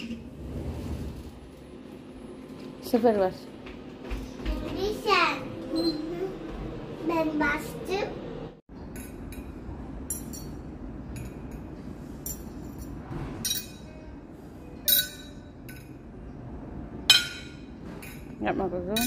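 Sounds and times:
room hum: 0.0 - 19.0
glassware and cutlery clinking: 8.9 - 11.7, 12.3 - 14.0, 14.8 - 16.0.

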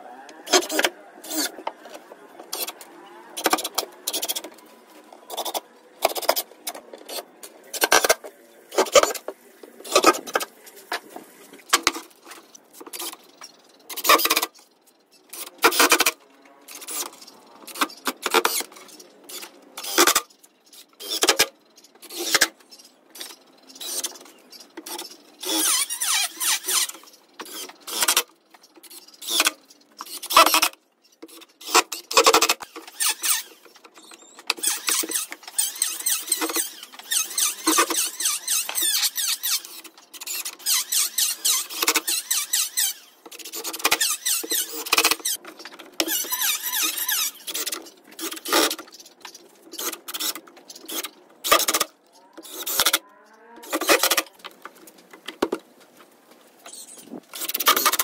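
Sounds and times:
drill driving screws into wood: 17.7 - 18.7, 19.3 - 20.2, 24.9 - 28.2, 29.2 - 33.8, 34.5 - 45.4, 46.0 - 48.8, 49.8 - 53.0, 53.6 - 54.3, 57.3 - 58.0.

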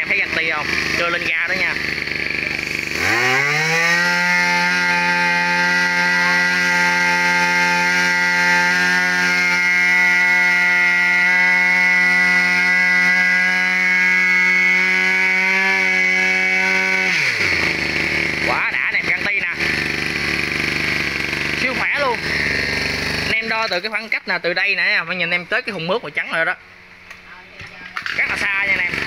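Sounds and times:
power sprayer engine revving: 0.0 - 24.2, 28.0 - 29.0.

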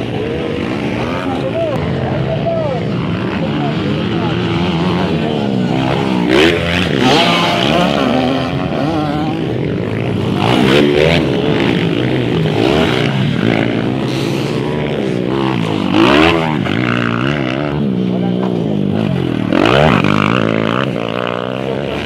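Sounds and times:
dirt bike engines revving: 0.0 - 22.0.

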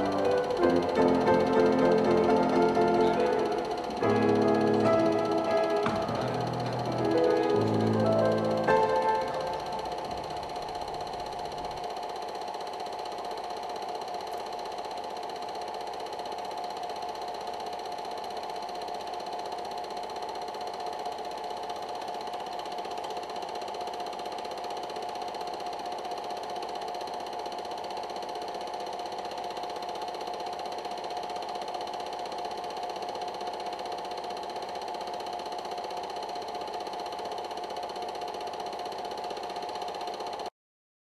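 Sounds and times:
mechanical whirring hum: 0.0 - 14.5.

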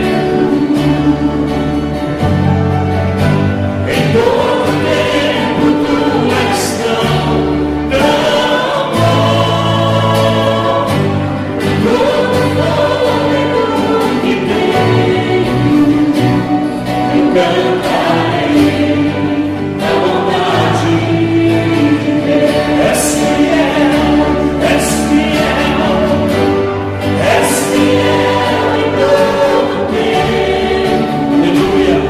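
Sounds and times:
voices singing along: 0.0 - 2.2, 3.7 - 32.0
band with piano and drums: 0.0 - 32.0
man singing into a microphone: 19.8 - 26.5.

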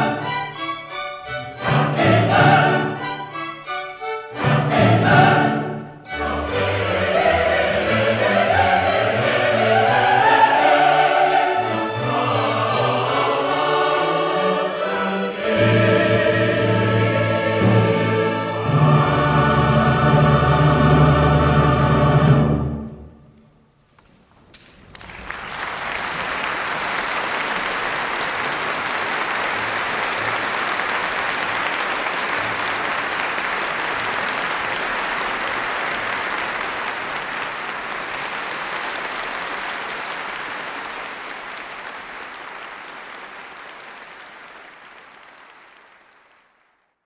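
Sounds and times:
audience applauding: 24.5 - 47.0.

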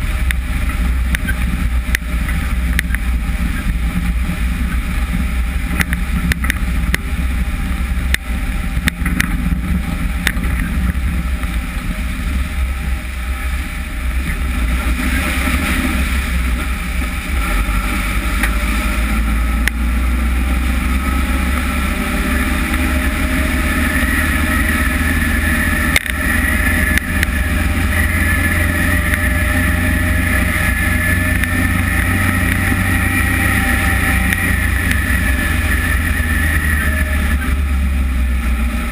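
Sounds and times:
heavy driving rumble: 0.0 - 38.9
high whine: 0.0 - 38.9
sharp ticks: 25.9 - 27.4.

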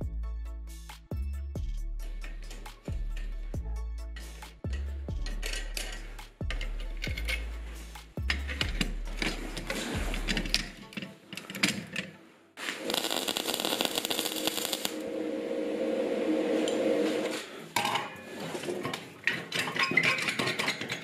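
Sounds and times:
fast metal rattling and rasping: 4.2 - 11.8.

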